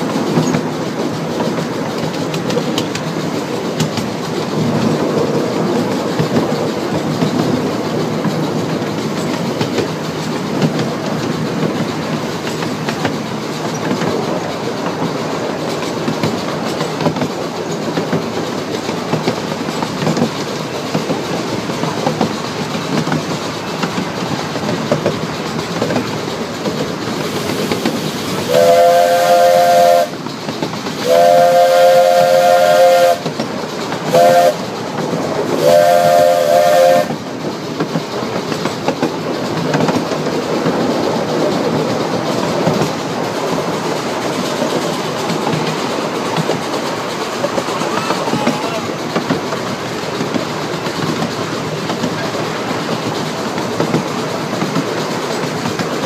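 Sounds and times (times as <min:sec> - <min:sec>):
train rolling along track: 0:00.0 - 0:56.0
steam locomotive whistle blasts: 0:28.4 - 0:30.2, 0:31.0 - 0:33.3, 0:34.1 - 0:34.6, 0:35.6 - 0:37.2.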